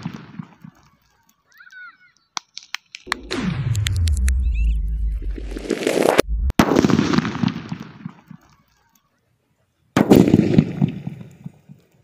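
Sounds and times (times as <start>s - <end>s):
explosive bang: 3.1s - 7.7s.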